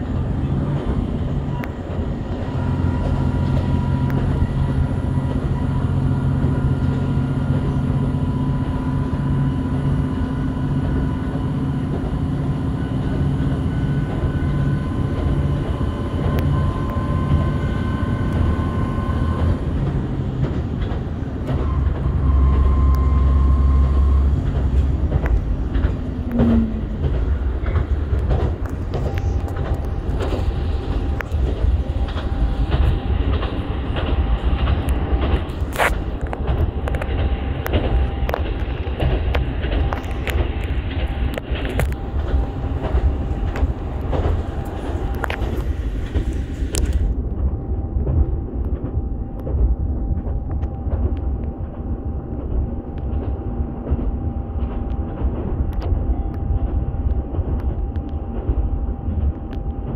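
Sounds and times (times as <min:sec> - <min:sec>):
railcar engine drone: 0:00.0 - 0:59.9
wheels clicking over rail joints: 0:19.3 - 0:59.9.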